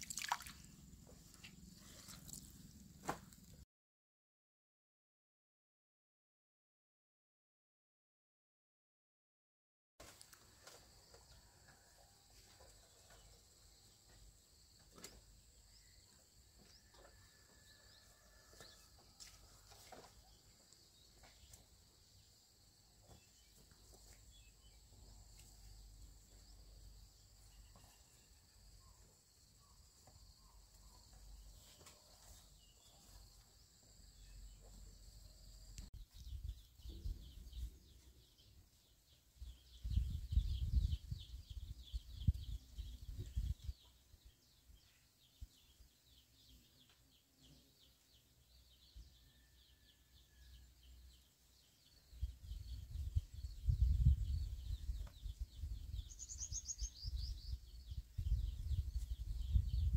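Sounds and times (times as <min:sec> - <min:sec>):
bird chirps: 0:51.8 - 0:59.9.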